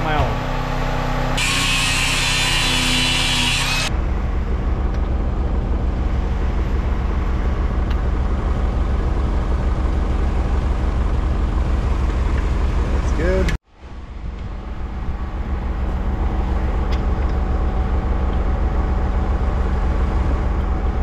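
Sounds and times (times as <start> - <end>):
tractor engine running: 0.0 - 21.0
angle grinder cutting steel: 1.4 - 3.9.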